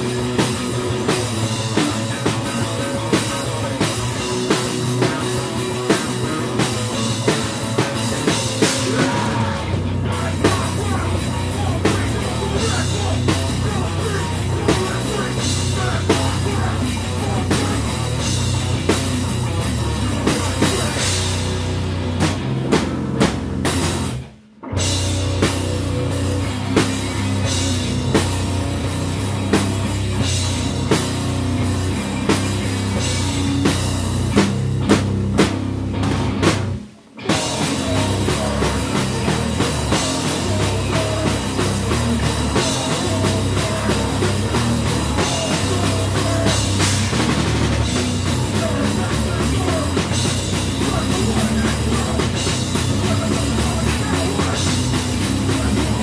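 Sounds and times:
bass guitar: 0.0s - 56.0s
distorted guitars: 0.0s - 56.0s
drum kit hit hard: 24.8s - 56.0s.

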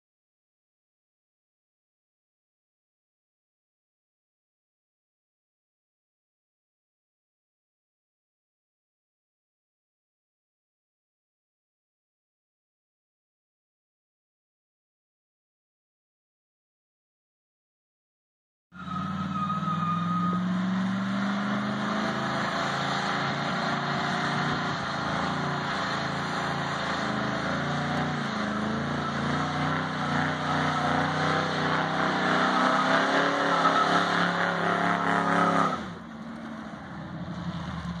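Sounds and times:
car engine revving: 18.8s - 38.0s
tyres squealing on pavement: 18.8s - 38.0s.

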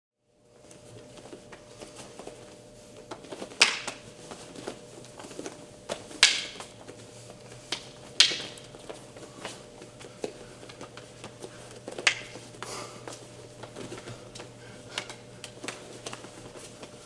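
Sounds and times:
sharp stick cracks: 6.2s - 6.6s, 7.7s - 8.7s
rattan sticks clacking together: 7.7s - 8.7s.

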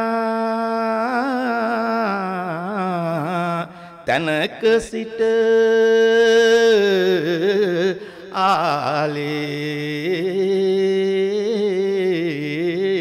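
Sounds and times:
man chanting: 0.0s - 13.0s
man breathing: 3.7s - 4.1s, 8.0s - 8.4s.

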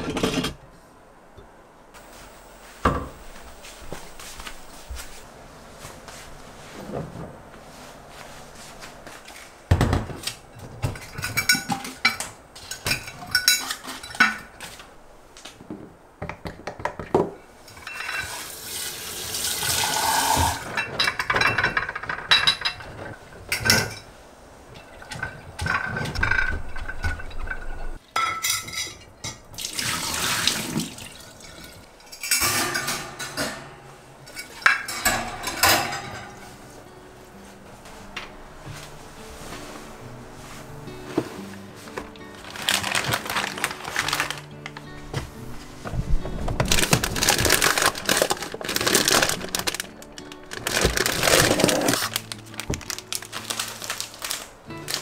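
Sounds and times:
tap water running: 18.2s - 20.7s, 29.5s - 31.9s.

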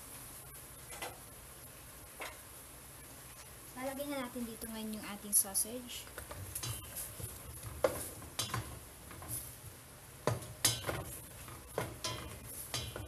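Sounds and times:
utensil knocking in steel pot: 10.2s - 13.0s.

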